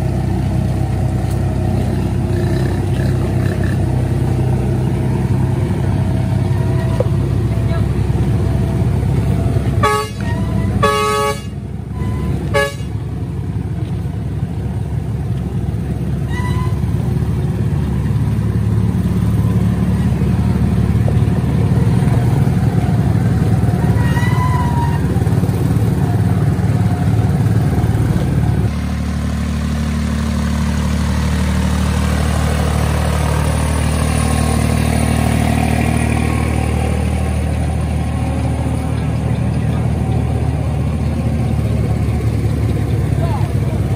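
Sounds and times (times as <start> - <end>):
tractor engine running: 0.0 - 43.9
vehicle horn toots: 9.8 - 13.0, 16.3 - 16.8.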